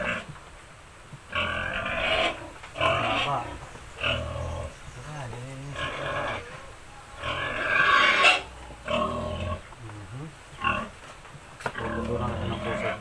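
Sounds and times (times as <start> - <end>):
pig grunting: 0.0 - 0.4, 1.3 - 9.7, 10.5 - 11.0, 11.7 - 13.0
piglets squealing: 1.4 - 4.7, 5.7 - 9.6.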